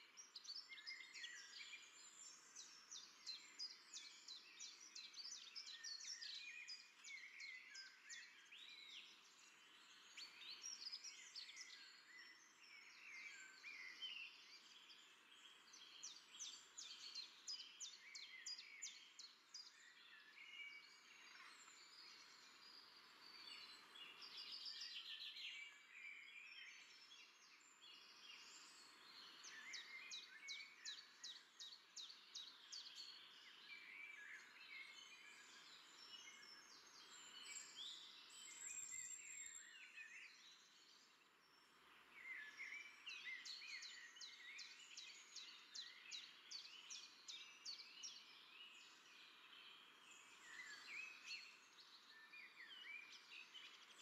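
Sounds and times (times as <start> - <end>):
many birds chirping: 0.1 - 54.0
faint outdoor hiss: 8.1 - 38.7.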